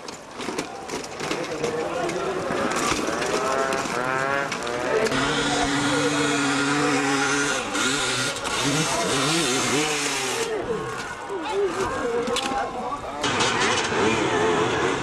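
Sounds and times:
dirt bike engine revving: 0:02.4 - 0:10.7, 0:13.2 - 0:15.0.

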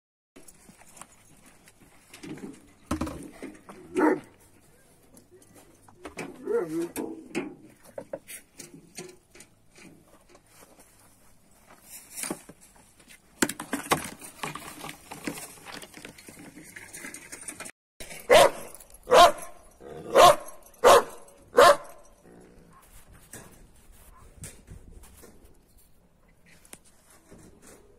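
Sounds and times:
dog barking: 0:03.9 - 0:04.3, 0:18.3 - 0:22.0.

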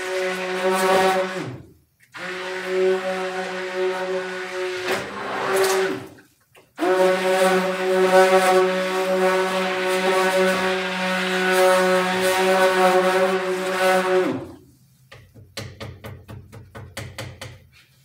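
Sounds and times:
stick blender motor humming: 0:00.0 - 0:06.1.

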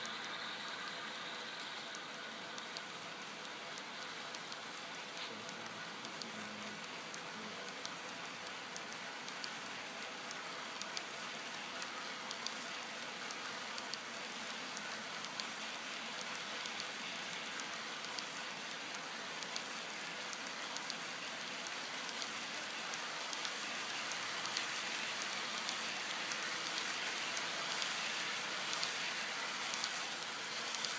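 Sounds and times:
model train wheels hissing: 0:13.3 - 0:30.9.

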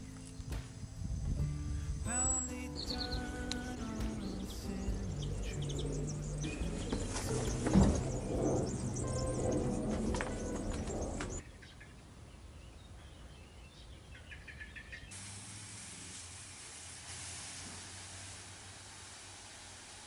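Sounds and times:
birds chirping faintly: 0:00.0 - 0:15.2
hose spraying water on lawn: 0:15.1 - 0:20.0.

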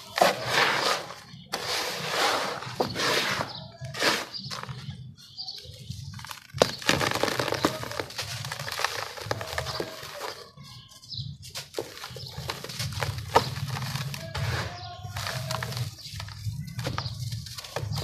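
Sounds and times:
sharp crunches of grit: 0:06.1 - 0:10.6
sand crumbling and pouring: 0:06.2 - 0:10.5, 0:11.7 - 0:18.0.

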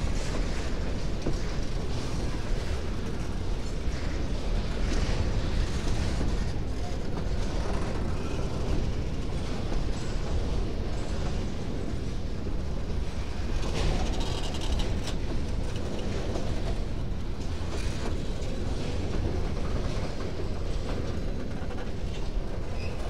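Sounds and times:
freight train wheels rumbling: 0:00.0 - 0:23.0
train knocks: 0:13.4 - 0:23.0.

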